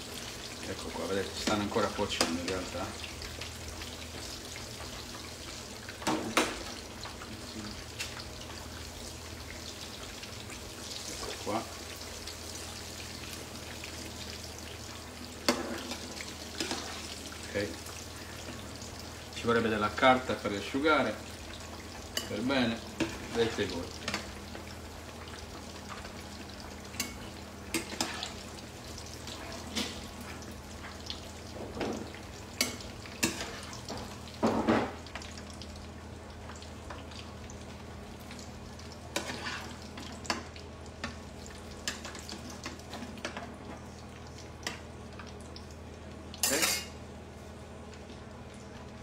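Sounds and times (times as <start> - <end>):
slices sizzling in oil: 0.0 - 49.0.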